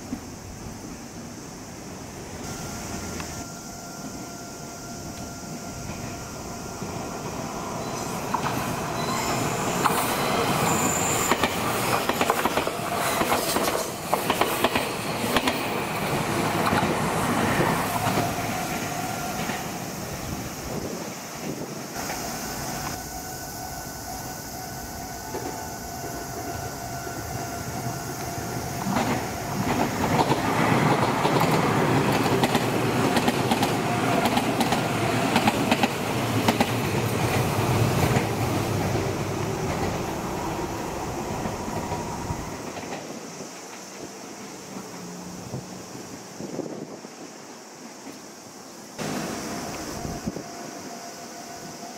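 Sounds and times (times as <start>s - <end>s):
crossing warning bell ringing: 2.4s - 11.7s, 22.4s - 29.8s
train wheels clattering over rails: 7.8s - 19.8s, 28.2s - 45.0s.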